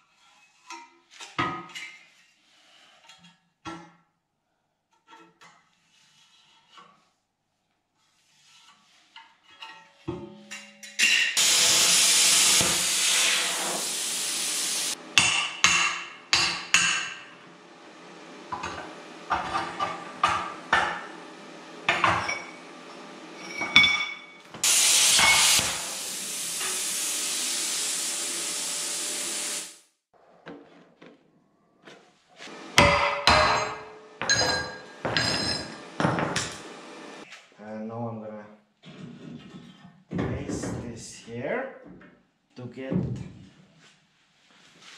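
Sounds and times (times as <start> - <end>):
plasma cutter hissing: 11.4 - 15.0, 24.6 - 29.8.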